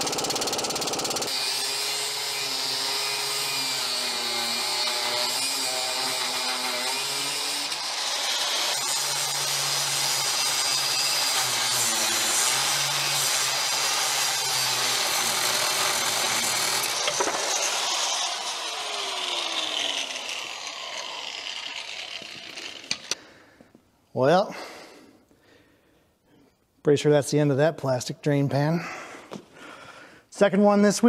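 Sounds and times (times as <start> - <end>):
power tool whining: 0.0 - 23.4.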